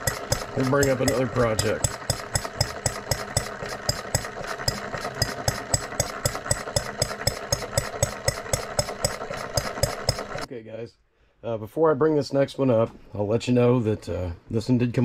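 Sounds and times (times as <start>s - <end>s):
model engine running: 0.0s - 10.5s.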